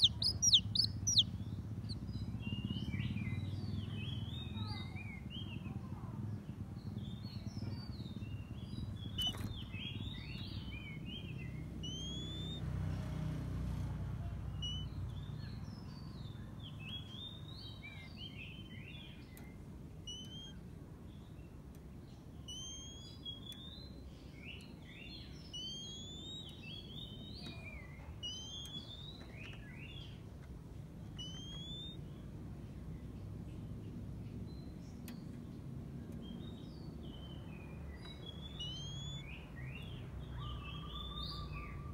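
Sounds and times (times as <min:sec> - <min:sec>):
bird whistles and chirps: 0:00.0 - 0:05.3, 0:08.1 - 0:12.7, 0:14.5 - 0:20.6, 0:22.4 - 0:30.2, 0:31.1 - 0:32.1, 0:36.4 - 0:41.9
low background rumble: 0:00.0 - 0:12.7.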